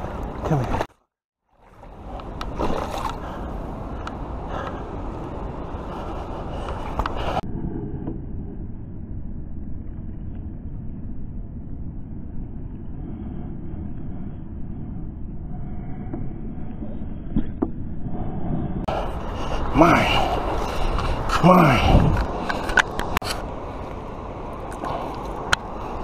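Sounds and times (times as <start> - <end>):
sharp water splashes: 1.6 - 3.4
low rumble: 1.6 - 26.0.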